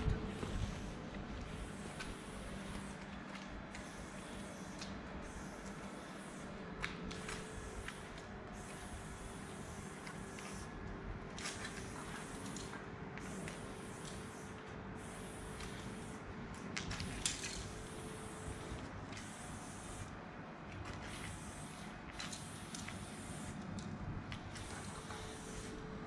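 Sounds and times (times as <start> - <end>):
spray-paint can hissing: 1.4 - 3.0, 3.7 - 10.7, 11.4 - 16.3, 16.9 - 20.1, 21.0 - 23.7, 24.4 - 25.8.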